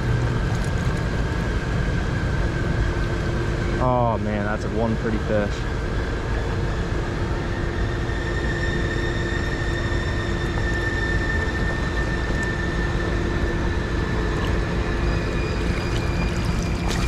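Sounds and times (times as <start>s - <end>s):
high even whine: 0.0s - 17.0s
low mechanical drone: 0.0s - 17.0s
creek water rushing: 12.0s - 17.0s.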